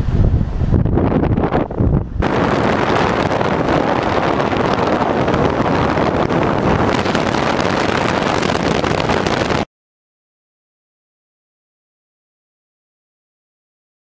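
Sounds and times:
wind roaring over microphone: 0.0 - 9.7
car road noise: 1.7 - 9.6.

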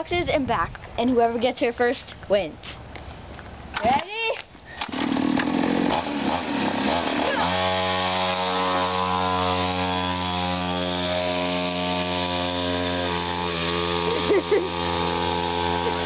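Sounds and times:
small petrol engine revving: 4.8 - 16.0.

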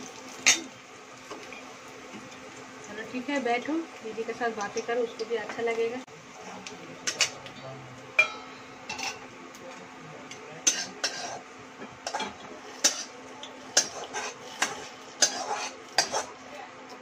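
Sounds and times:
metal utensils clinking on pots: 7.0 - 7.6, 8.2 - 9.3, 10.3 - 16.3.

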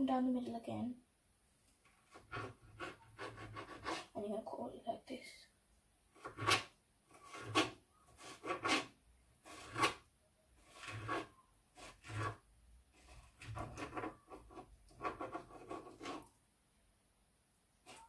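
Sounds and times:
knife cutting on plastic board: 2.0 - 4.1, 6.1 - 16.3.

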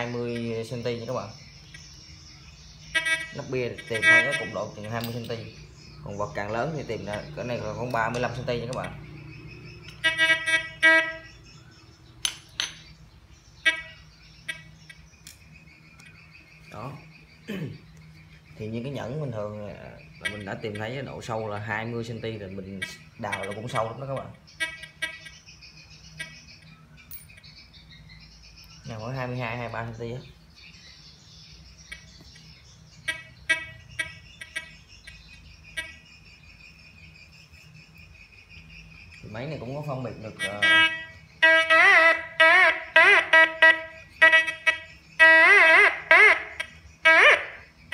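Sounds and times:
crickets chirring: 0.0 - 47.9
metal detector buzzy beeps: 2.9 - 4.8, 9.9 - 11.3
metal tools clinking on tiles: 4.8 - 5.5, 27.1 - 27.4.

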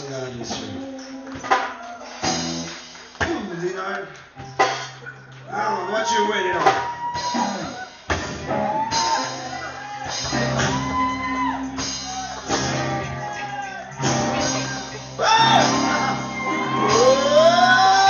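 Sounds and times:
voices shouting and singing: 5.0 - 18.0
band playing worship music: 7.1 - 18.0.

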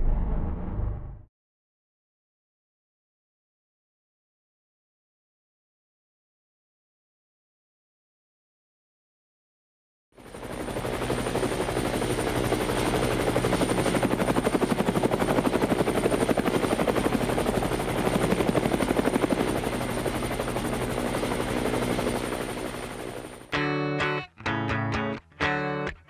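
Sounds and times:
helicopter rotor chopping: 10.2 - 23.5.

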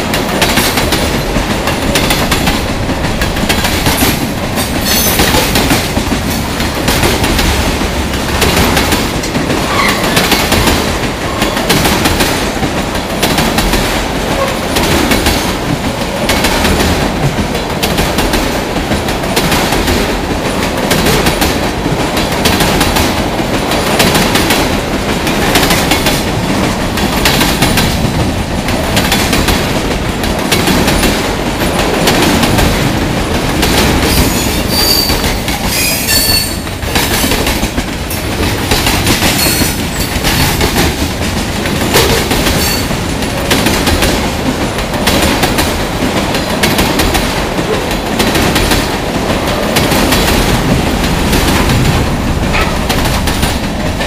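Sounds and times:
clickety-clack over rail joints: 0.0 - 54.0
freight train passing: 0.0 - 54.0
wheel squeals: 34.2 - 36.6.

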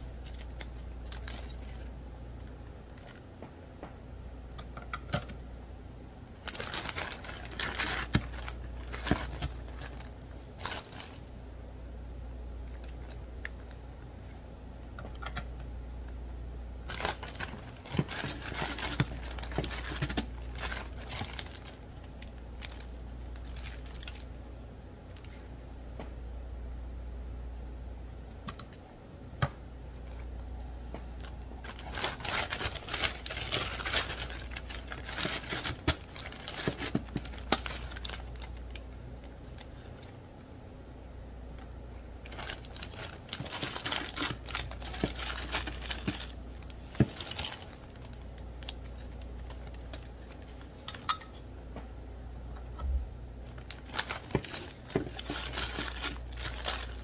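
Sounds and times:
crinkling plastic bag: 0.0 - 2.0, 6.4 - 11.4, 16.8 - 24.3, 31.2 - 40.2, 42.1 - 51.1, 53.4 - 57.0.

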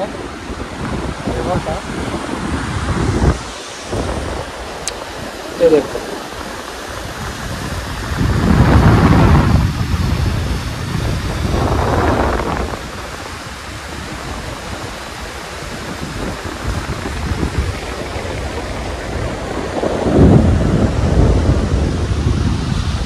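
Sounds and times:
river rushing: 0.0 - 23.0
wind buffeting microphone: 0.0 - 23.0.

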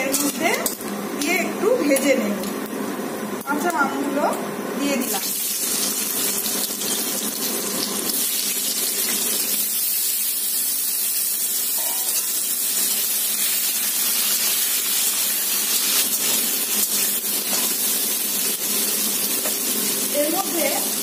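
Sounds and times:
mango pieces sizzling in oil: 4.9 - 21.0.

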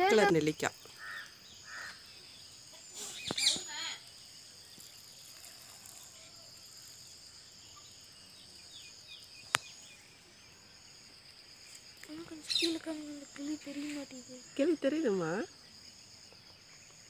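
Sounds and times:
high insect trill: 0.0 - 17.0
faint falling bird chirps: 2.8 - 4.0.

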